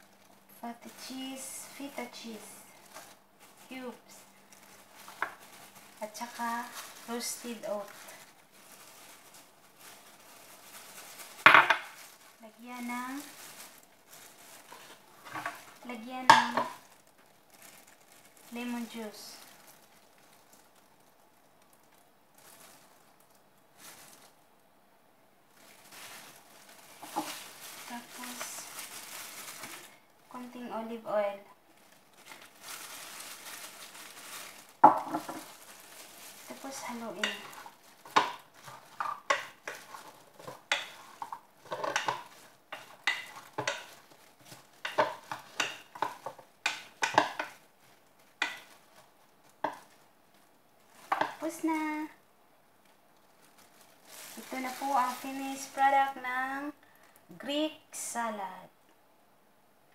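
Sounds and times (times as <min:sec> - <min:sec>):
faint plastic glove rustles: 0:00.0 - 0:58.7
spoon tossing salad: 0:36.5 - 0:47.7, 0:48.3 - 0:50.0.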